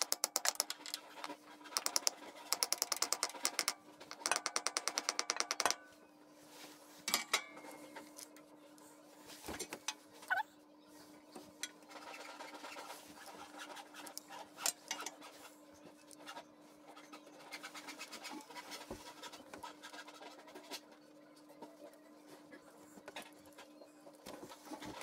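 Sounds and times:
scratching and metal clicks of bolts: 0:00.0 - 0:01.0, 0:01.8 - 0:05.8.

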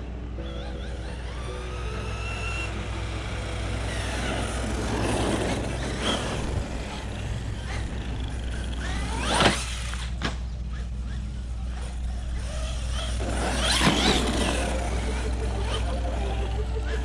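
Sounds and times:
electric motor whine: 0:00.0 - 0:17.0
tyre noise on asphalt: 0:03.7 - 0:11.5, 0:12.2 - 0:15.1.

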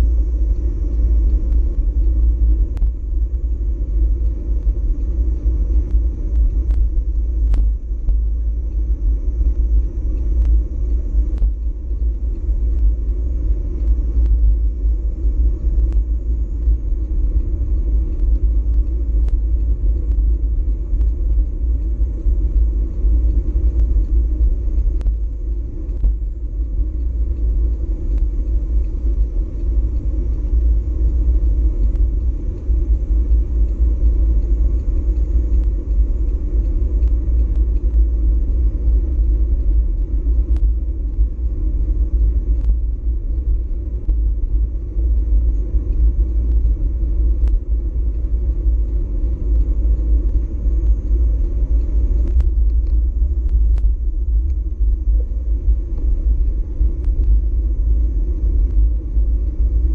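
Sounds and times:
wind rumble on microphone: 0:00.0 - 0:59.9.

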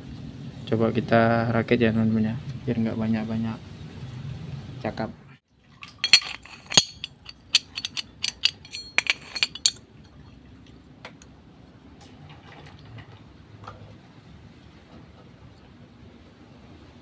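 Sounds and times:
faint handling noise: 0:05.8 - 0:09.8
metal clutch plates clinking: 0:05.8 - 0:09.8.

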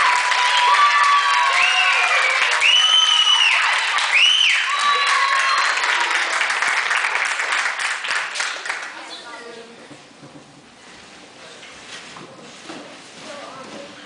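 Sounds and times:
high-pitched cheers and whoops: 0:00.0 - 0:06.3
audience applauding: 0:00.0 - 0:09.0.

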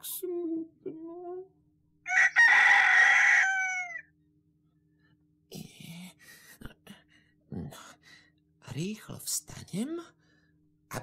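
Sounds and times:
rooster crowing: 0:02.0 - 0:04.2.

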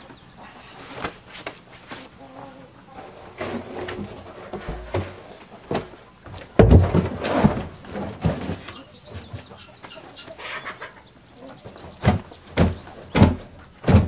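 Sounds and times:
plastic drum knocks and thumps: 0:03.4 - 0:08.6, 0:12.0 - 0:14.0.

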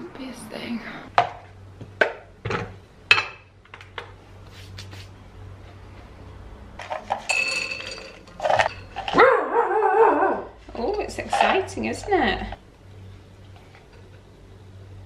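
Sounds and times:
ceramic bowl clinking on glass: 0:07.2 - 0:09.1.

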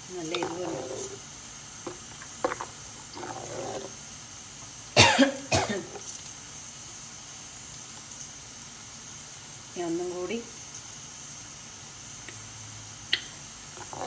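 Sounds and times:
steady low hiss: 0:00.0 - 0:14.0
person coughing: 0:05.0 - 0:06.0.

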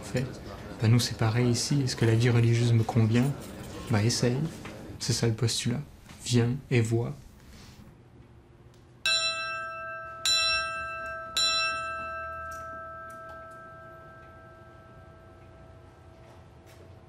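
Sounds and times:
small brass bell ringing: 0:09.1 - 0:16.2.

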